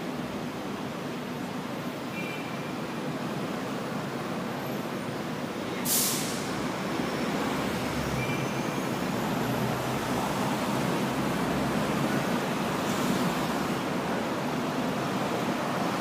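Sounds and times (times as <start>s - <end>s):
road traffic rumble: 0.0s - 16.0s
air brakes hiss: 5.8s - 6.6s.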